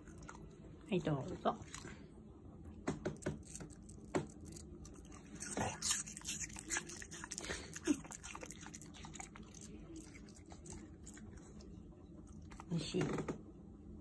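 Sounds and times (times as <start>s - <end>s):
dog crunching apple: 3.0s - 11.7s.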